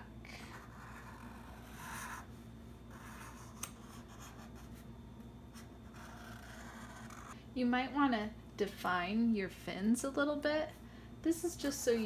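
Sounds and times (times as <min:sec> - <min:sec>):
marker scratching on cardboard: 0:00.6 - 0:02.3, 0:05.6 - 0:07.4.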